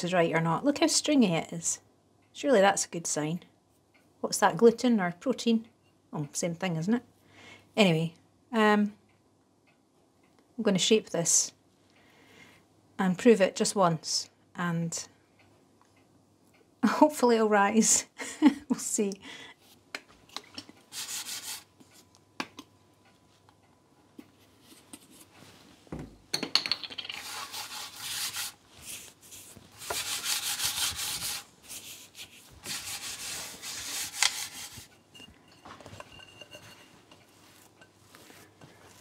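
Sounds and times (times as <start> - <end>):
hand rubbing cutting board: 20.9 - 21.7, 27.2 - 34.9.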